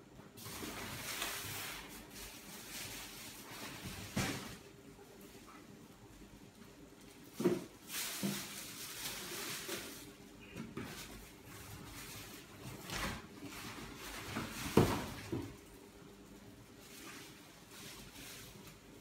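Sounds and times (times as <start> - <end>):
plastic film rustling: 0.4 - 4.7, 6.7 - 15.7, 16.6 - 19.0
knocks and thumps on tiled floor: 7.4 - 8.4, 14.3 - 15.6.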